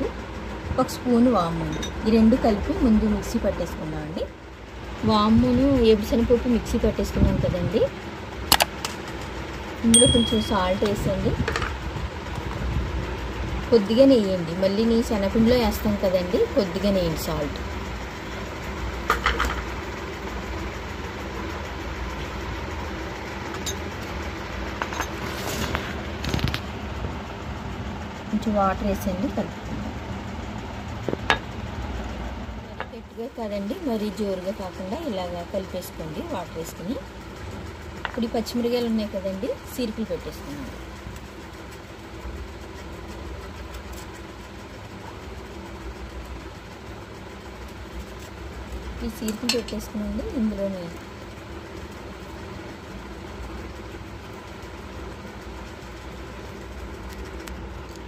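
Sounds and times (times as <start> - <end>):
low mechanical hum of machinery: 0.0 - 58.0
low background rumble: 9.2 - 19.2.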